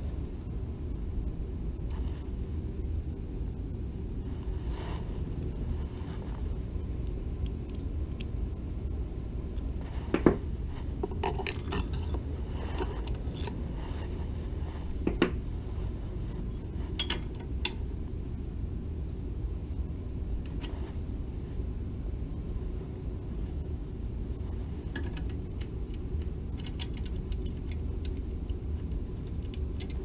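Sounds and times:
steady low hum: 0.0 - 30.0
metal tools clinking and knocking: 11.0 - 13.6.

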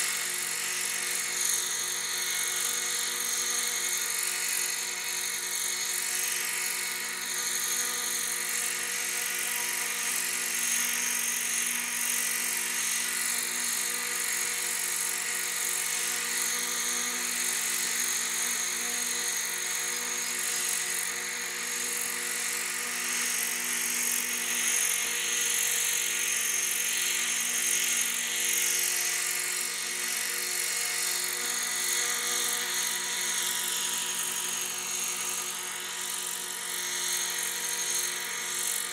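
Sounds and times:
model helicopter engine whine: 0.0 - 38.9.

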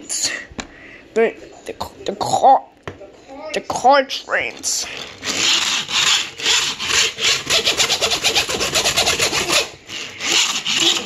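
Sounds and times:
rasping rubbing or scraping: 4.4 - 11.0.

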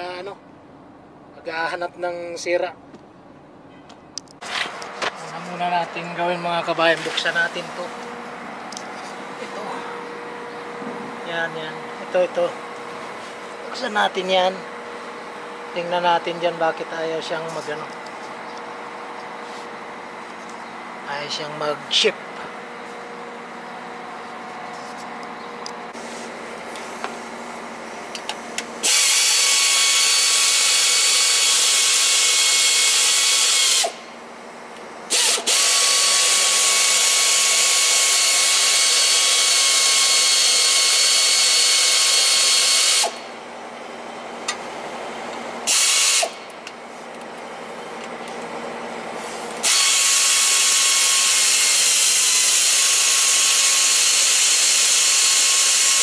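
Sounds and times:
power tool whining: 28.1 - 34.1, 35.1 - 43.3, 45.6 - 46.6, 49.2 - 56.0.

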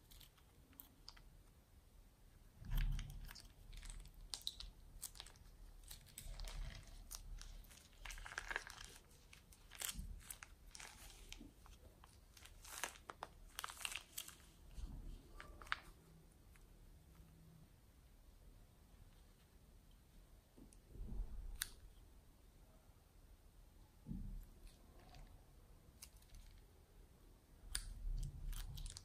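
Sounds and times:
plastic piping bag crinkling: 2.6 - 16.6, 27.6 - 29.0
foam beads crackling: 3.8 - 14.6.

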